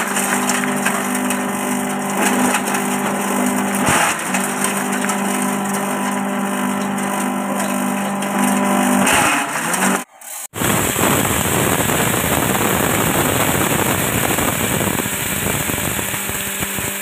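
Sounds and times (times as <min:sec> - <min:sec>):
electric motor humming: 0:00.2 - 0:17.0
material being chopped: 0:02.1 - 0:05.2.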